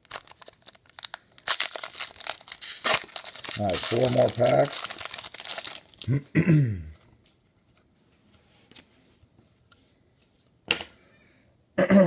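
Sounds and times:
foil wrapper crinkling: 0.0s - 6.1s
cards ticking: 3.4s - 5.6s
person clearing throat: 6.0s - 7.0s, 11.8s - 12.0s.

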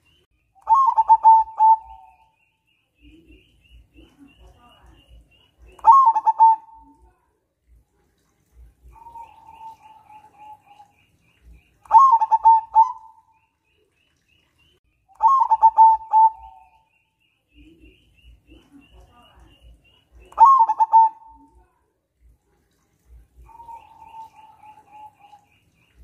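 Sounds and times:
dove cooing: 0.7s - 2.3s, 5.8s - 7.0s, 11.9s - 13.3s, 15.2s - 16.8s, 20.3s - 21.6s, 23.4s - 25.5s.

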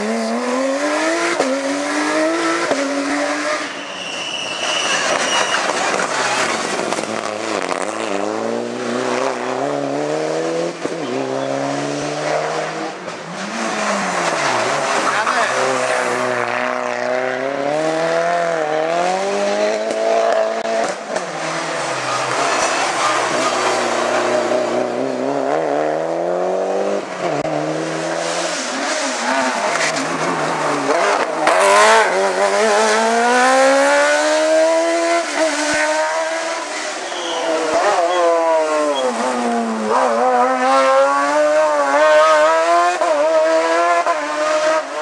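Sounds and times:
race car engines revving: 0.0s - 45.0s
tyre squeal: 3.5s - 6.6s, 22.0s - 23.9s, 36.7s - 39.4s.

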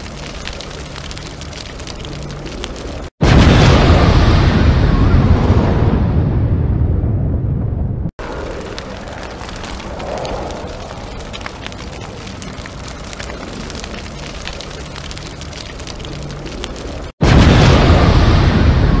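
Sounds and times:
crackling hiss with pops: 0.0s - 3.1s, 8.2s - 17.2s.

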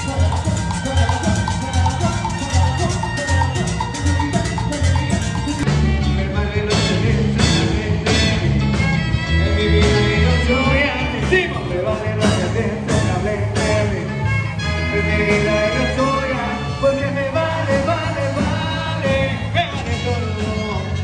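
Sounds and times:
saxophones: 0.0s - 5.7s
drum kit beat: 0.0s - 20.9s
bass notes: 0.0s - 21.0s
brass playing: 0.0s - 21.0s
live latin dance band: 0.0s - 21.0s
man singing: 0.0s - 21.0s.

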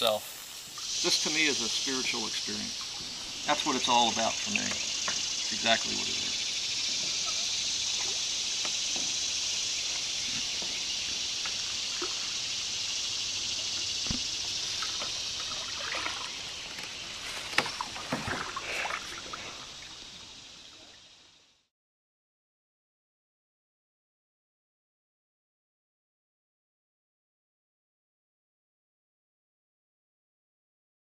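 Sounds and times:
steady high hiss: 0.0s - 21.7s
paddle dripping in water: 0.7s - 21.0s
small splashes: 9.9s - 20.0s.

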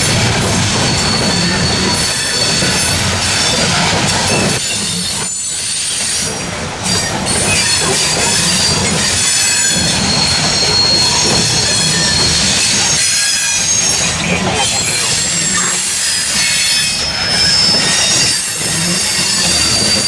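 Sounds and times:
steel wheels squealing on rails: 0.0s - 20.0s
train cars rumbling and rattling: 0.0s - 20.0s.

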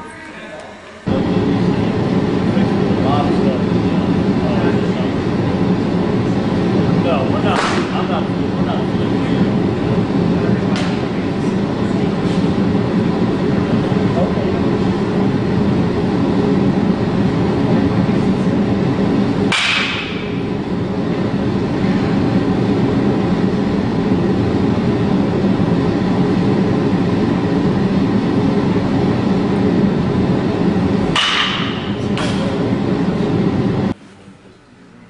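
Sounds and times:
loud low rumble: 1.1s - 34.0s
bat cracking a ball: 7.5s - 8.0s, 19.5s - 20.5s, 31.1s - 32.5s.

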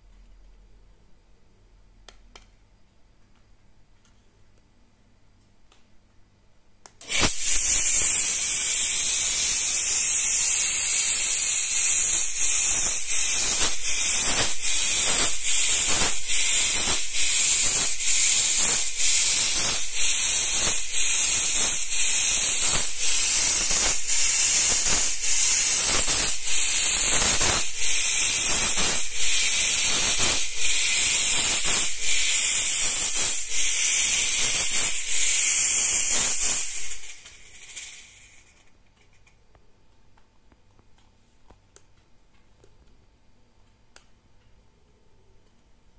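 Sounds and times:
fog machine hissing: 7.0s - 38.8s.

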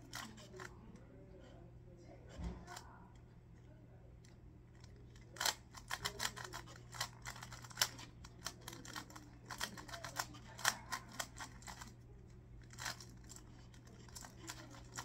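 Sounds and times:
puzzle cube clicking as turned: 5.2s - 11.9s, 12.6s - 15.0s.

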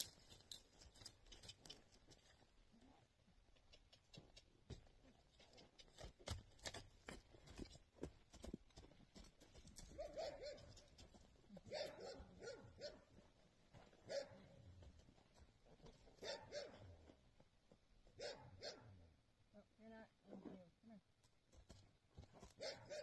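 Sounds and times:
dog barking faintly: 10.0s - 10.8s, 11.6s - 13.1s, 14.1s - 14.5s, 16.2s - 16.9s, 18.2s - 19.0s, 22.6s - 23.0s.

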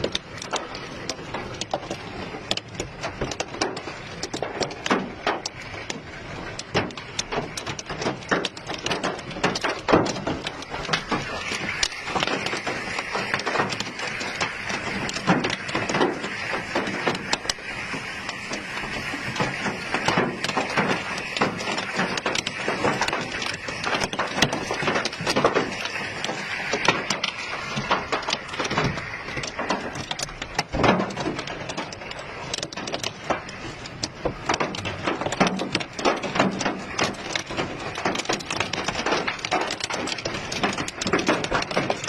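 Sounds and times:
heavy hail clattering: 0.0s - 42.0s.

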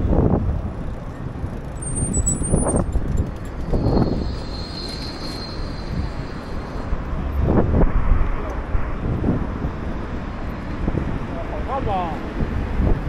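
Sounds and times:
street traffic passing: 0.0s - 13.0s
thin high whine: 1.7s - 7.3s.

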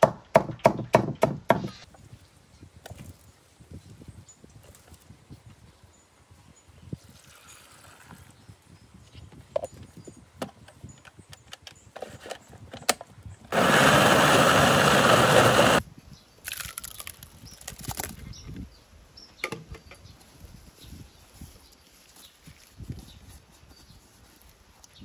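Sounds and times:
electric blender grinding: 13.5s - 15.8s.

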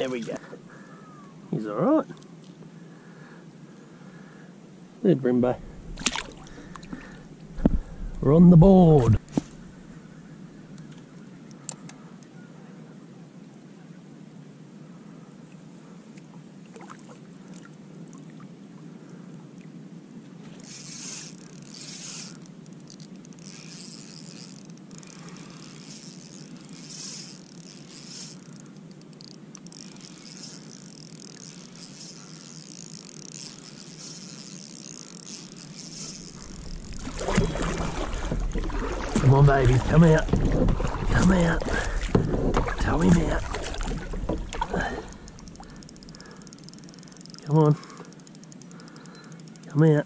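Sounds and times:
wind and water hiss around kayak: 0.0s - 50.0s.

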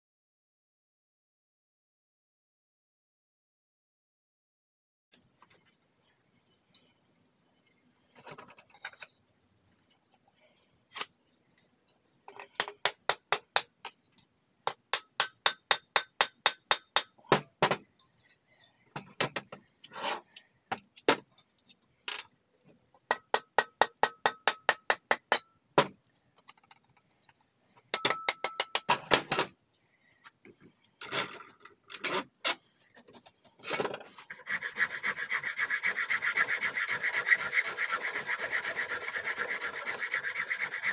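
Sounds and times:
rasp filing wood: 34.3s - 40.9s.

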